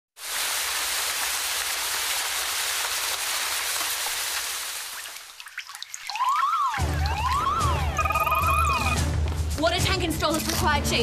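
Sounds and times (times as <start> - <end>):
heavy rain: 0.2 - 5.3
water dripping: 0.5 - 9.0.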